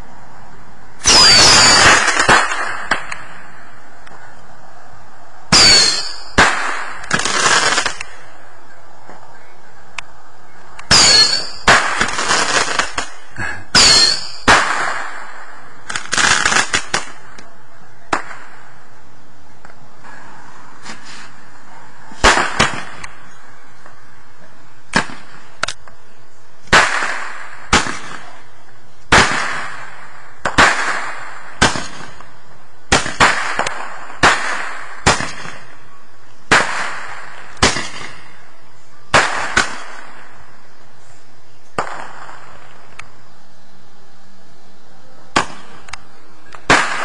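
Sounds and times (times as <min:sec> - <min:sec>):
fireworks bangs with echo: 0:01.0 - 0:03.7, 0:05.5 - 0:08.2, 0:10.9 - 0:17.3, 0:18.1 - 0:18.8, 0:22.2 - 0:23.1, 0:24.9 - 0:25.5, 0:26.6 - 0:28.4, 0:29.1 - 0:35.8, 0:36.4 - 0:38.4, 0:39.1 - 0:40.5, 0:41.7 - 0:43.0, 0:45.3 - 0:45.9, 0:46.5 - 0:47.0.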